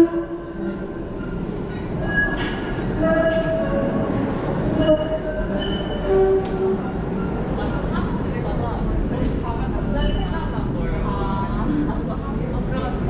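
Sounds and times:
wheel squeal: 0.0s - 7.6s
streetcar rumbling on rails: 0.0s - 13.0s.

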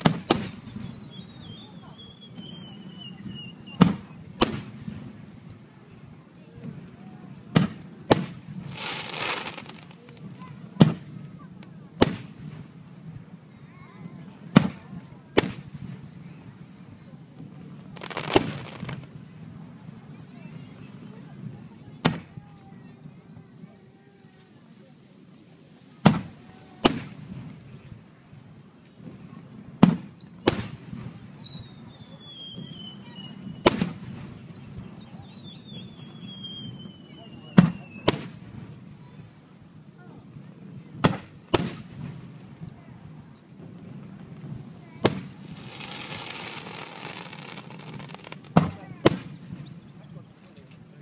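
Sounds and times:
firework shells booming: 0.0s - 1.4s, 7.5s - 11.2s, 17.4s - 19.6s, 29.8s - 31.4s, 32.2s - 34.9s, 36.0s - 39.3s, 40.7s - 50.0s
hissing crackle: 17.7s - 19.3s, 41.0s - 50.9s
firework shells bursting: 44.0s - 49.8s.

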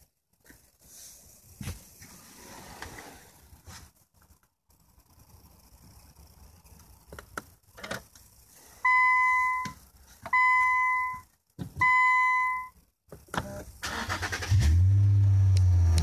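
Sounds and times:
car warning buzzer beeps: 8.8s - 11.2s, 11.8s - 12.8s.

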